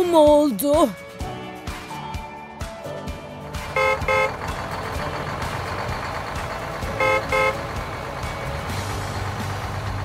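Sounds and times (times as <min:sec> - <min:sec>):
truck engine running: 0:03.2 - 0:10.0
horn toots: 0:03.6 - 0:04.5, 0:06.9 - 0:07.8.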